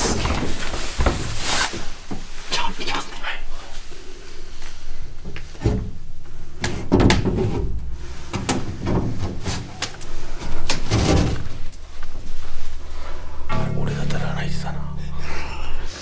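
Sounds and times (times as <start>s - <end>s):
knocks and scrapes on wooden boards: 10.7s - 11.7s.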